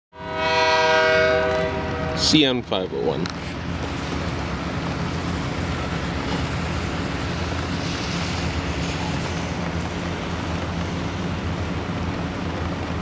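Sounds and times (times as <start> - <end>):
rain noise: 0.2 - 13.0
low drone: 1.2 - 13.0.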